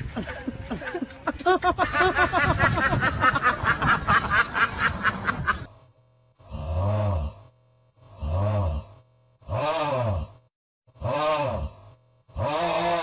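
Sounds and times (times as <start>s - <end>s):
ducks quacking: 1.8s - 5.7s.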